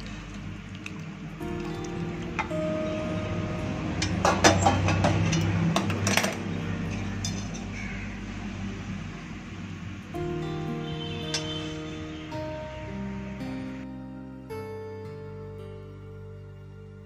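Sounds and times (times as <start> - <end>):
faint background music: 0.0 - 17.0
dishware clinking: 4.0 - 7.8.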